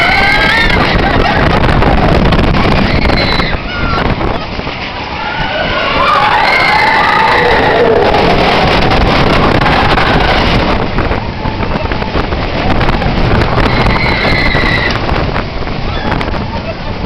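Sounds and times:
riders screaming: 0:00.0 - 0:01.6, 0:02.6 - 0:04.3, 0:05.1 - 0:10.7, 0:13.6 - 0:15.0
roller coaster rumbling on track: 0:00.0 - 0:17.0
wind buffeting microphone: 0:00.0 - 0:17.0.

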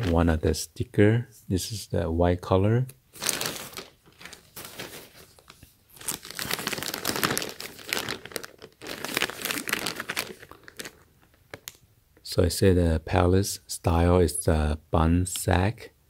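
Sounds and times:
plastic packaging crinkling: 0:03.1 - 0:11.8.

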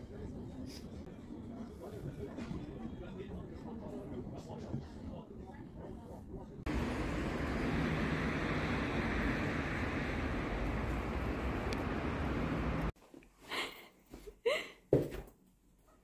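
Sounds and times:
outdoor street noise: 0:06.6 - 0:13.0.

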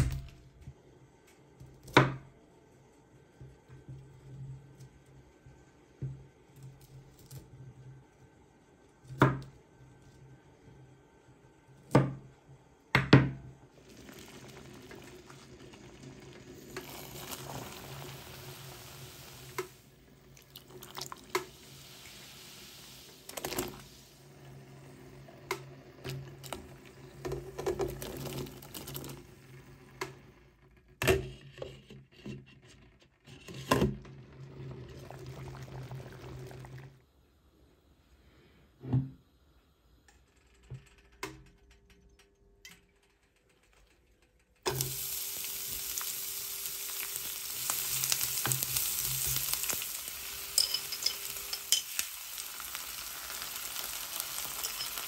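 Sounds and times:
water pouring into metal pot: 0:13.7 - 0:24.4, 0:26.0 - 0:29.2, 0:34.3 - 0:37.0, 0:44.7 - 0:55.0
pot clattering: 0:50.2 - 0:52.2, 0:54.2 - 0:55.0.

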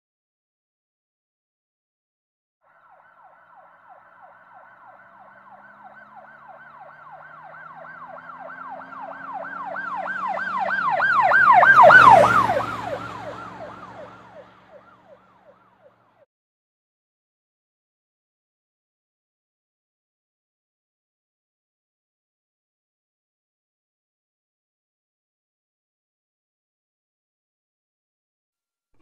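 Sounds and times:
emergency vehicle siren yelping: 0:02.7 - 0:16.2
engine and road rumble: 0:03.0 - 0:16.2.

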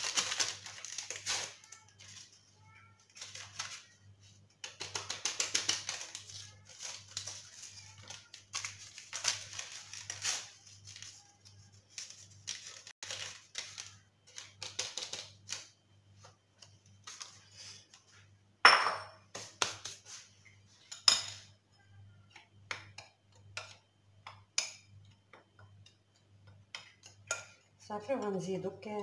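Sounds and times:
paper sachet rustling: 0:00.0 - 0:02.4, 0:03.0 - 0:04.0, 0:04.7 - 0:15.6.

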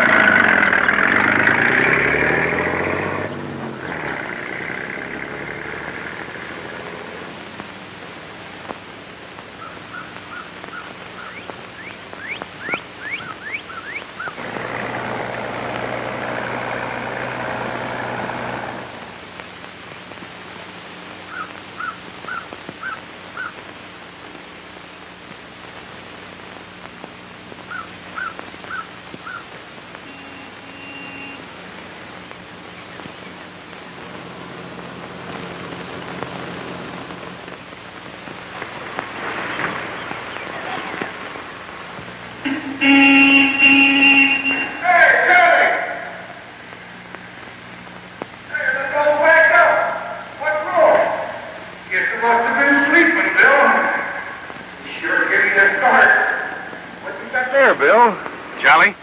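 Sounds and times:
birds chirping: 0:00.0 - 0:05.2, 0:09.4 - 0:16.2, 0:21.2 - 0:23.7, 0:27.6 - 0:34.2, 0:38.5 - 0:44.9
vehicle engine: 0:00.0 - 0:09.4, 0:10.0 - 0:21.0, 0:29.3 - 0:59.0.

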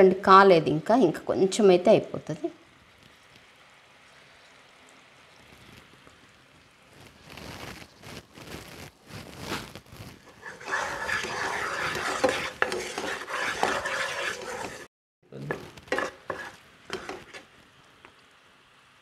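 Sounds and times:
syrup sizzling: 0:02.6 - 0:08.8, 0:10.1 - 0:19.0
wooden spoon stirring and scraping: 0:06.9 - 0:17.6.

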